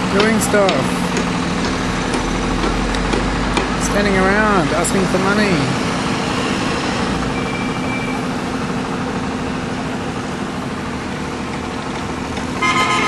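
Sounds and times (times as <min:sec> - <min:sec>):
machinery humming: 0:00.0 - 0:13.0.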